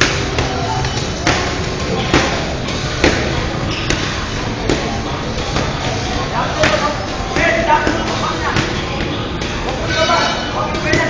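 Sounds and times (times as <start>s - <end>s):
punches and kicks smacking: 0.0s - 6.0s.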